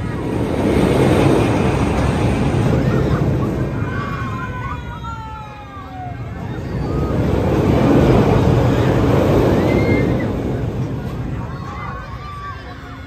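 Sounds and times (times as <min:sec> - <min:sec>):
ride car rumbling on track: 0:00.0 - 0:13.0
riders screaming: 0:08.6 - 0:10.6.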